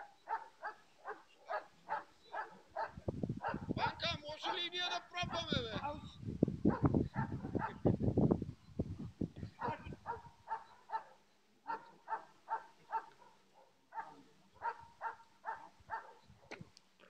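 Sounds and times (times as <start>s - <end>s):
dog barking: 0.0s - 4.6s, 6.7s - 7.9s, 9.6s - 16.3s.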